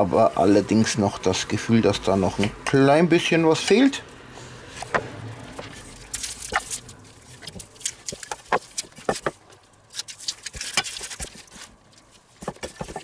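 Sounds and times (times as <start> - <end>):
hand squishing raw meat: 5.6 - 13.0.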